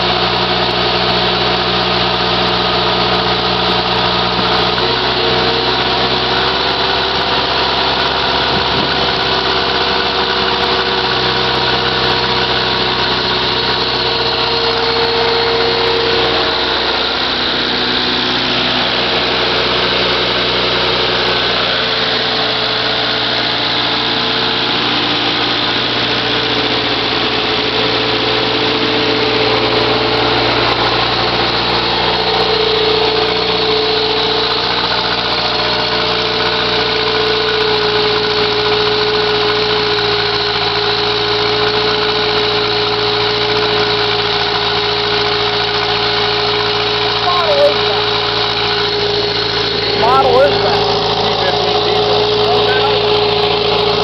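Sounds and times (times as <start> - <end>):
tractor engine running: 0.0 - 54.0.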